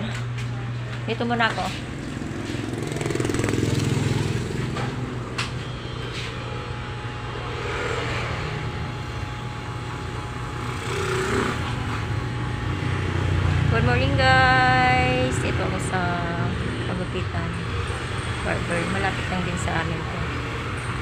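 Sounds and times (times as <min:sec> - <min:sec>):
traffic passing: 0:00.6 - 0:21.0
hair clippers buzzing: 0:01.9 - 0:13.7.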